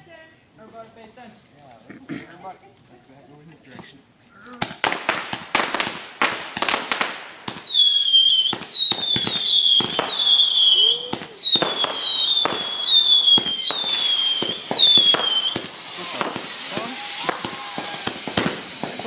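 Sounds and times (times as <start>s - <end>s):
firework pops: 4.6s - 19.0s
fireworks banging: 4.6s - 19.0s
whistling firework shots: 4.6s - 19.0s.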